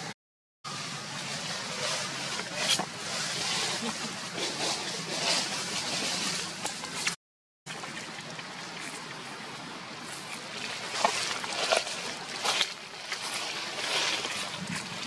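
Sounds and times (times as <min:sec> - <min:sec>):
dry leaves crackling: 0:00.7 - 0:07.1, 0:10.1 - 0:15.0
wind on microphone: 0:14.2 - 0:15.0.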